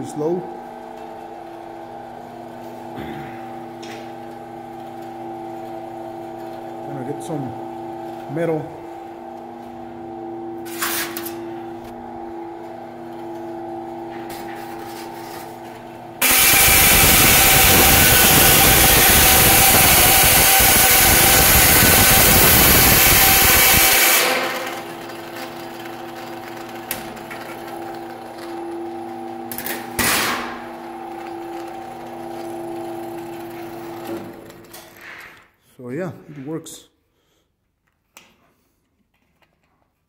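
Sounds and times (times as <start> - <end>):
bandsaw humming: 0.0 - 34.8
saw cutting sheet metal: 16.2 - 25.4.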